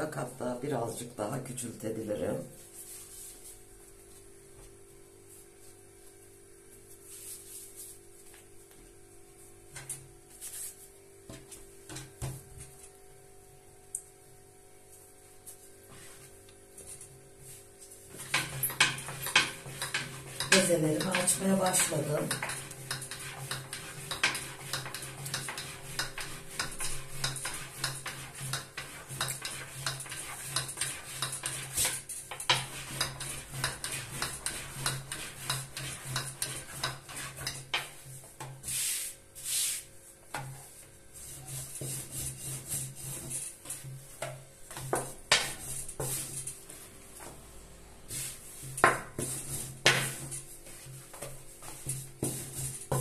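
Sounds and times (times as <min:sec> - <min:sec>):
wooden rolling pin rolling dough: 0:15.4 - 0:47.4, 0:48.1 - 0:53.0.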